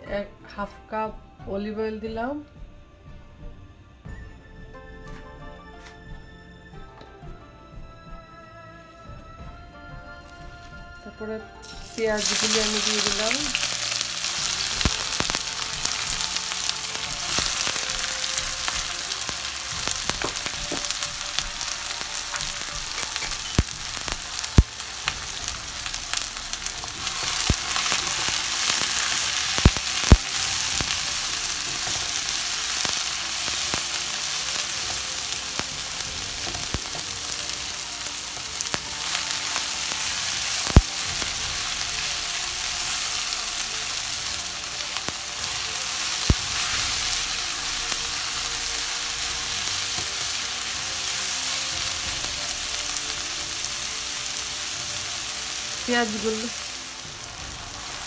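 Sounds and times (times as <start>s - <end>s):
onions sizzling in a pan: 11.6s - 58.0s.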